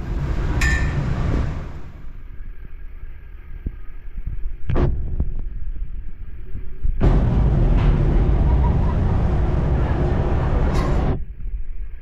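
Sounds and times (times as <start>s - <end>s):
loud rushing noise: 0.0s - 2.0s, 7.0s - 11.3s
ferry engine rumble: 0.0s - 2.2s, 7.0s - 11.4s
knocks and clatter: 7.0s - 11.2s.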